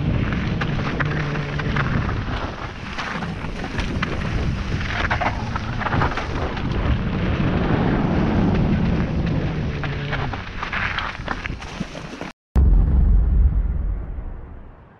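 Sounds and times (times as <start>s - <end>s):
wind rushing over microphone: 0.0s - 11.6s.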